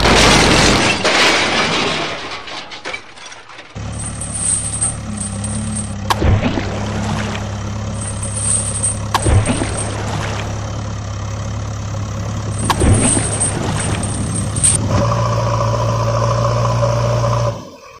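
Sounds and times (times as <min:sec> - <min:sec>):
heavy machine engine humming: 0:03.8 - 0:18.0.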